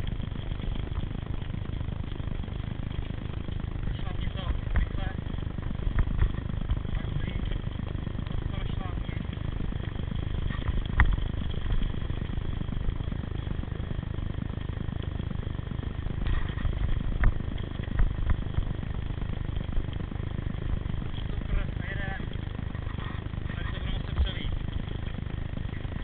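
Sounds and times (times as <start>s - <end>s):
wind and tyres rumbling: 0.0s - 26.0s
bike knocking and clattering: 4.6s - 8.4s.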